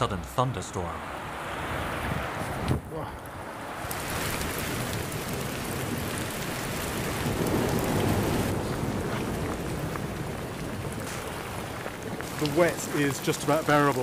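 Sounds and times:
rain falling: 0.0s - 14.0s
thunder rumble: 2.0s - 14.0s.

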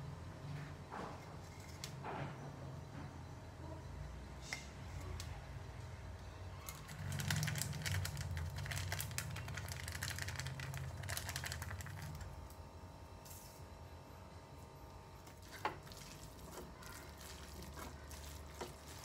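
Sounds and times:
spice containers clicking and rattling: 6.7s - 12.4s.

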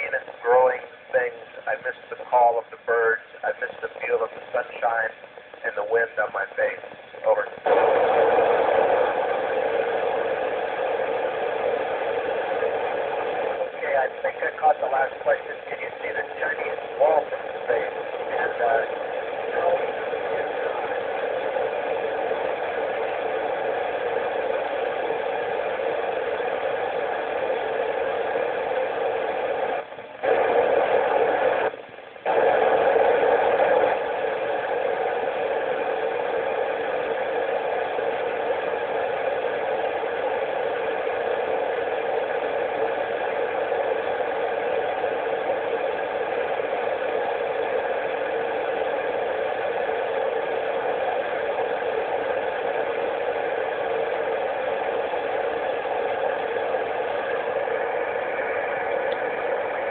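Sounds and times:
radio receiver hiss: 0.0s - 59.9s.

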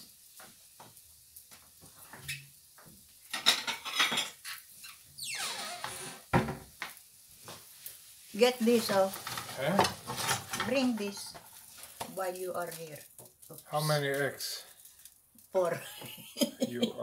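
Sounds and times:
plates and cutlery clattering: 3.3s - 4.5s, 9.1s - 11.6s.

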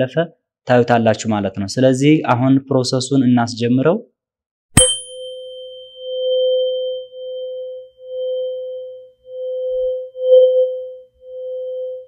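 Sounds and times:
hammer striking tuning fork: 4.8s - 12.0s
tuning fork ringing: 4.8s - 12.0s.

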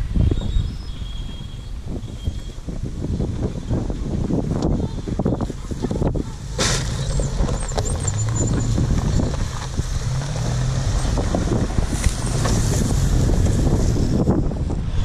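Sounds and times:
car engine running at low speed: 2.4s - 15.0s
tyres crunching over gravel: 5.1s - 14.2s.

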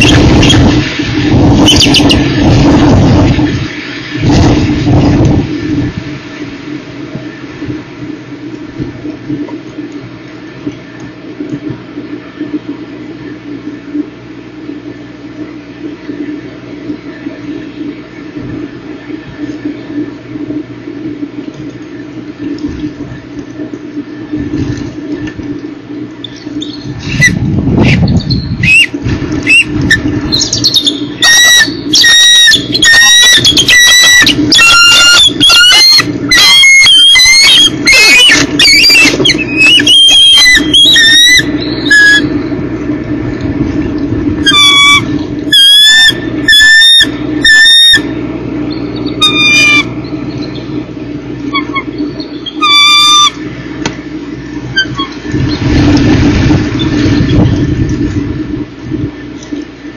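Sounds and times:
steady low hum: 0.0s - 59.9s
eagles piping calls: 30.4s - 42.3s, 44.4s - 48.1s, 49.0s - 50.7s, 51.5s - 53.4s.

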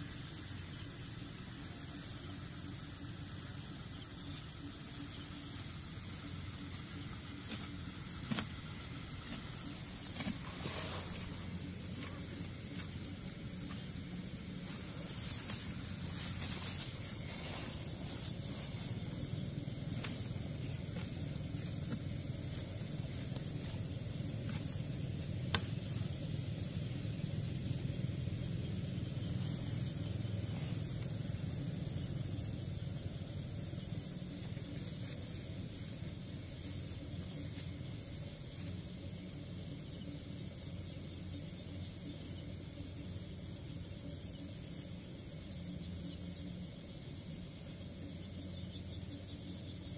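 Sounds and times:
crickets and night insects chirping: 0.0s - 49.9s
low rumble: 0.6s - 38.3s.

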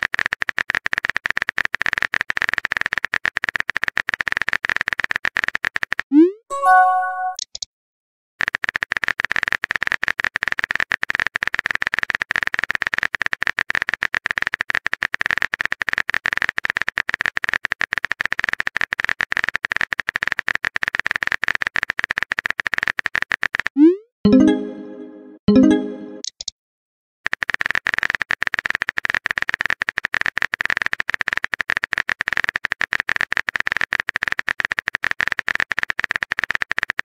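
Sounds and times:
message-sent chime: 6.5s - 7.4s, 24.3s - 26.2s.

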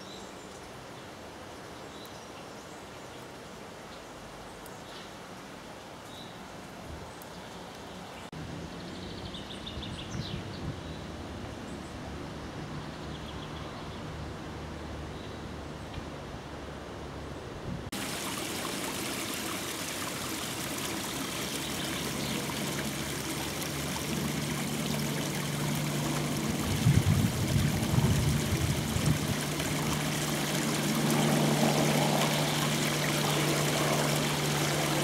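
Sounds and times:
running water rushing: 17.9s - 35.0s.

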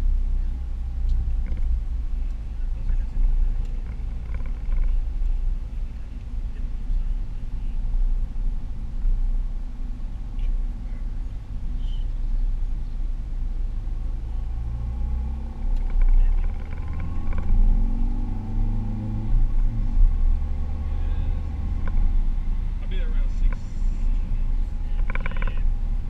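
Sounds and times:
car engine and tyre rumble: 0.0s - 26.0s.

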